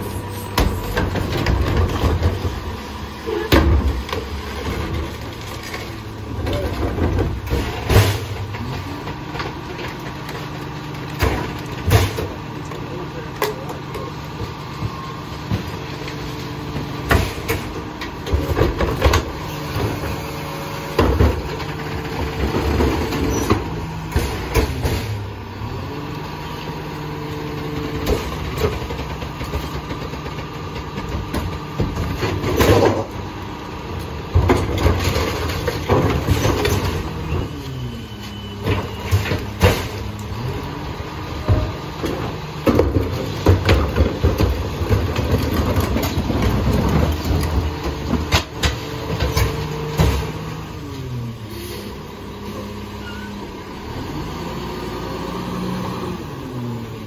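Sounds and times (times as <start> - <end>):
garbage carts banging: 0.0 - 25.4, 27.9 - 33.3, 34.0 - 50.8
diesel engine running: 0.0 - 57.0
hydraulic whine: 49.1 - 56.7.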